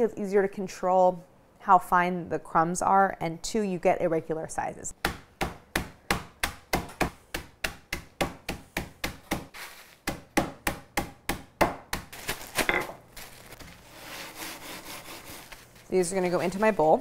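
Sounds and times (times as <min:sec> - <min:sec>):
rolling pin striking plastic bag: 0:12.0 - 0:13.8
crackers crunching: 0:12.1 - 0:14.0.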